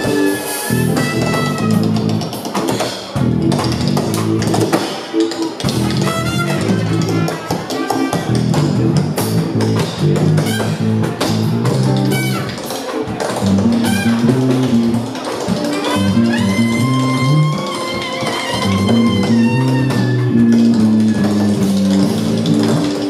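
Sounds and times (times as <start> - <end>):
trumpet: 0.0 - 2.2, 5.8 - 8.8, 10.4 - 11.2, 11.9 - 12.8, 13.6 - 14.9, 15.7 - 22.3
live band music: 0.0 - 23.0.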